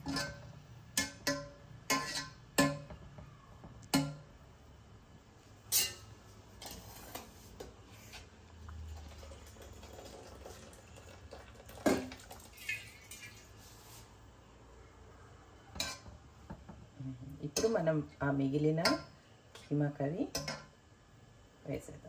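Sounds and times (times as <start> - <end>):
spoon clinking against a pot: 0.0 - 3.0, 15.8 - 16.1, 20.3 - 20.7.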